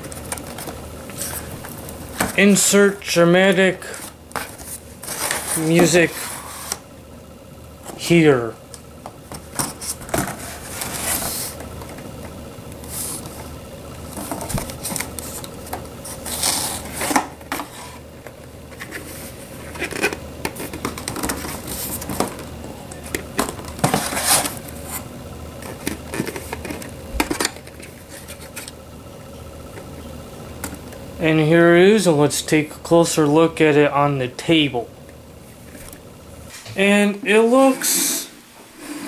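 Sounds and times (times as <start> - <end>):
plastic helmet scraping cardboard box: 3.8 - 6.8, 9.6 - 11.7, 14.1 - 18.0, 18.7 - 22.4, 23.7 - 25.0.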